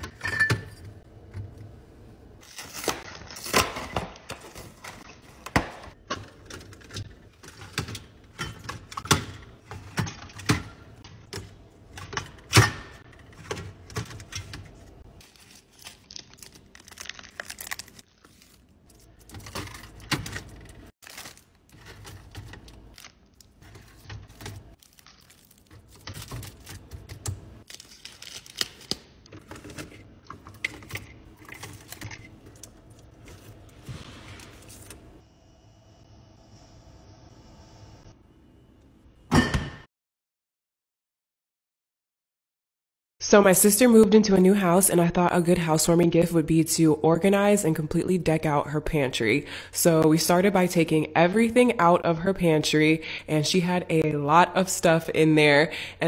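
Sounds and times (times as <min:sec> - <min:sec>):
plastic shrink wrap crinkling: 0:15.2 - 0:20.0, 0:21.0 - 0:27.0, 0:27.6 - 0:29.1.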